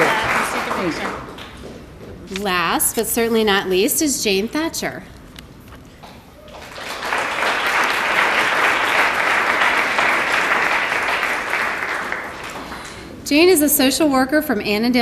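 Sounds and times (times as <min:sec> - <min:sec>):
audience applauding: 0:00.0 - 0:01.6, 0:06.4 - 0:13.2.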